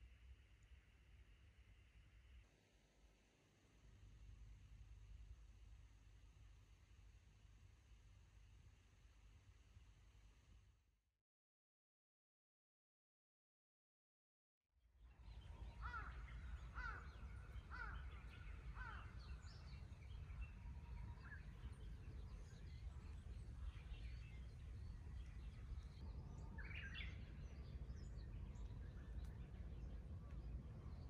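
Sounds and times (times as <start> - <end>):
birds calling: 15.8 - 20.4.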